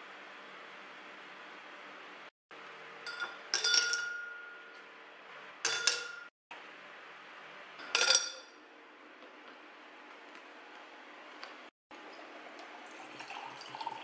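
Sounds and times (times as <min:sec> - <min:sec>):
glass ringing: 0:03.1 - 0:04.8, 0:05.6 - 0:06.3, 0:07.8 - 0:08.6.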